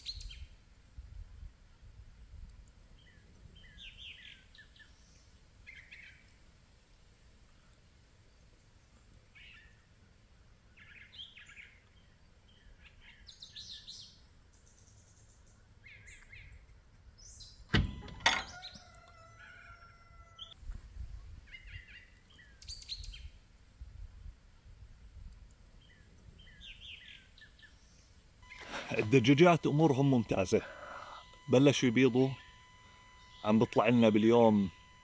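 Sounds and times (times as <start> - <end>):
birds chirping: 3.0 - 6.3, 25.8 - 35.0
sharp ringing knocks: 17.8 - 18.7.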